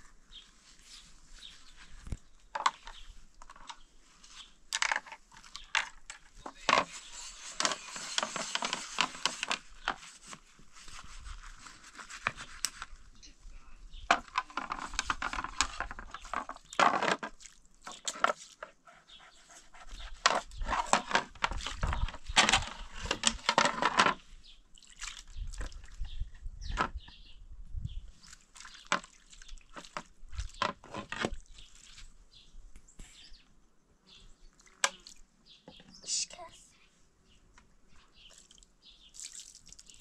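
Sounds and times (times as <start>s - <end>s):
water splashing over plates: 24.7s - 26.0s, 28.2s - 32.1s, 38.3s - 40.0s.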